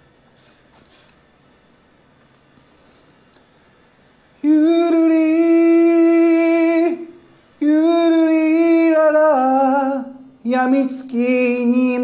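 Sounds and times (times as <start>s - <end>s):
man singing long held notes: 4.4s - 12.0s.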